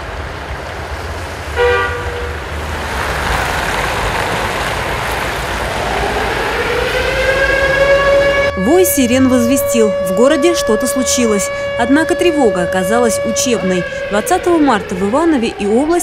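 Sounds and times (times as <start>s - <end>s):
street traffic: 0.0s - 16.0s
car horn toot: 1.6s - 2.4s
warning siren wailing: 5.2s - 16.0s.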